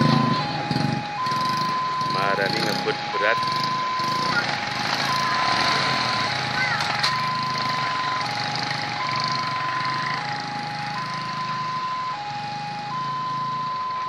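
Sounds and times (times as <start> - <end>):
level crossing two-tone alarm: 0.0 - 14.0
motorcycle engines: 0.0 - 14.0.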